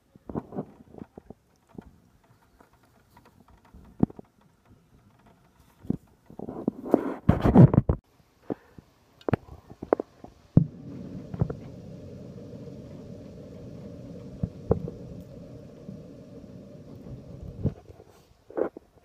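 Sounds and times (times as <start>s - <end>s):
heavy rain hissing: 10.4s - 18.3s.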